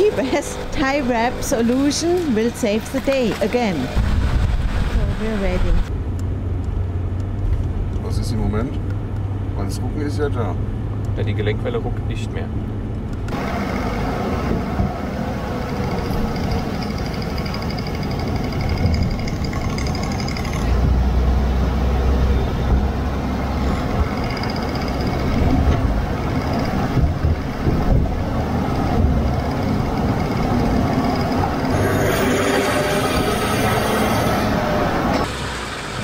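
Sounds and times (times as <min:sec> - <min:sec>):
tyre and road rumble: 0:00.0 - 0:36.0
drive shaft spinning: 0:15.6 - 0:20.9, 0:23.6 - 0:35.4.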